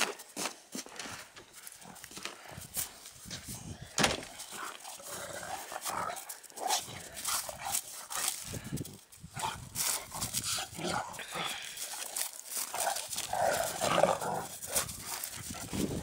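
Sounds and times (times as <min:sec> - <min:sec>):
dogs growling and snarling: 0:04.3 - 0:16.0.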